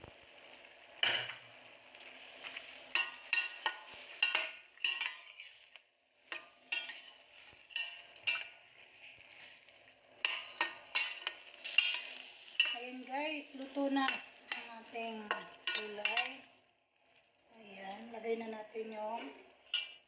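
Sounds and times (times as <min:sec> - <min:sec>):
faint sizzle of frying: 0:00.0 - 0:20.0
metal spatula scraping a pan: 0:02.3 - 0:16.5, 0:19.1 - 0:20.0.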